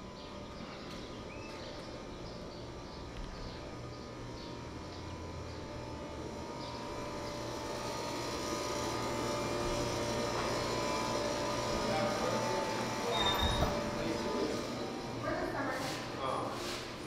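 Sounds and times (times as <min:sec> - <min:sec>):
train engine drone: 0:00.0 - 0:17.0.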